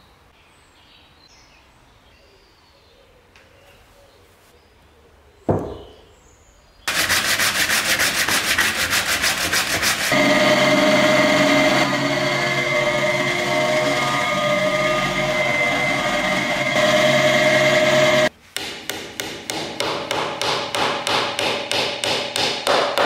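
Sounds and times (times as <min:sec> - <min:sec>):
sharp knock: 0:05.5 - 0:05.9
fast rhythmic scraping: 0:06.9 - 0:10.2
drill press boring wood: 0:06.9 - 0:18.3.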